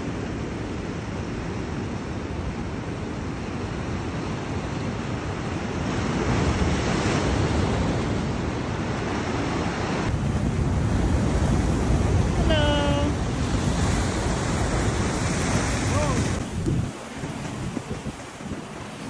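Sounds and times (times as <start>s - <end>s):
surf breaking on a seawall: 0.2s - 19.0s
wind buffeting microphone: 4.8s - 19.0s.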